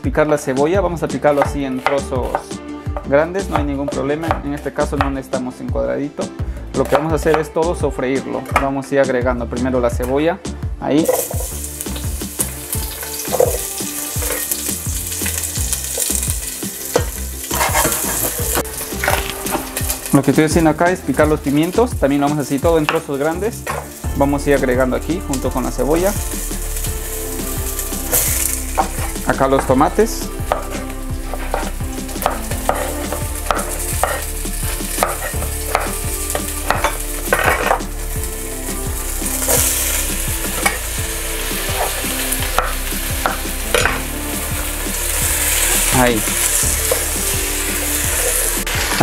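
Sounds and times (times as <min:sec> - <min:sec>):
background music: 0:00.0 - 0:49.0
onion sizzling in oil: 0:11.0 - 0:49.0
knife chopping on wooden board: 0:31.4 - 0:34.2, 0:35.0 - 0:36.0.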